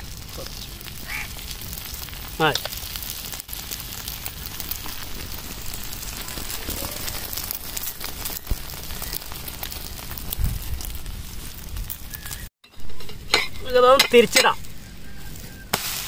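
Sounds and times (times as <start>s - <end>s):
omelette sizzling in oil: 0.0s - 12.5s
sharp pop: 15.7s - 16.0s.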